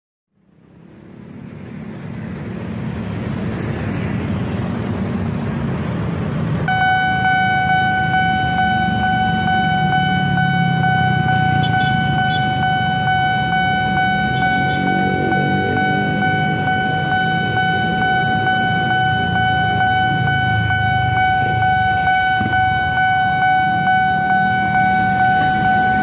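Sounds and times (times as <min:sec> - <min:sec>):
traffic passing: 0:00.3 - 0:26.0
crossing alarm high tone: 0:06.7 - 0:26.0.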